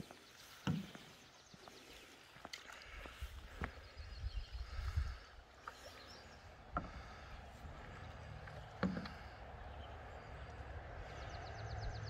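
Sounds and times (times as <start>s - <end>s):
low rumble with hiss: 7.0s - 12.0s.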